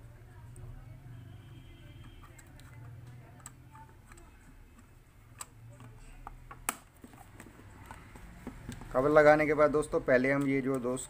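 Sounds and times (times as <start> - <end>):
plastic housing clicks and taps: 2.1 - 9.0.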